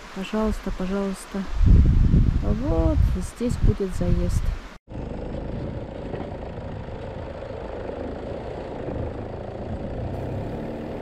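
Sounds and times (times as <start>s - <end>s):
truck engine running: 4.9s - 11.0s.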